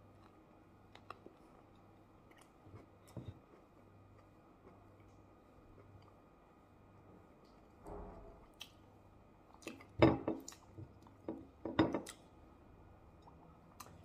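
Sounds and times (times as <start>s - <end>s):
person chewing: 0.0s - 6.2s.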